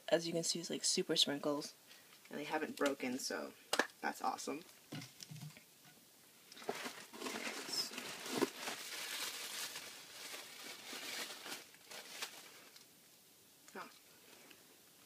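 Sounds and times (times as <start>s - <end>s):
packaging crinkling and rustling: 6.5s - 12.9s.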